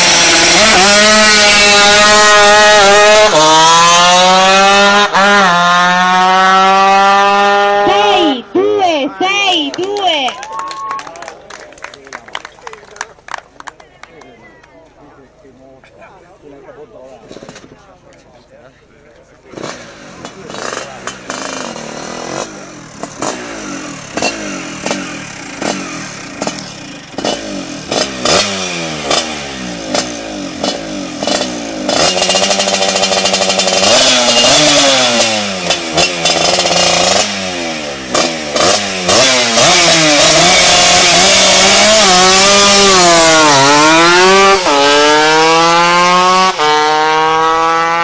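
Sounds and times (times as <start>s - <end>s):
scooter accelerating through gears: 0.0s - 8.5s, 19.4s - 48.0s
scooter engine revving: 0.0s - 9.6s, 19.4s - 48.0s.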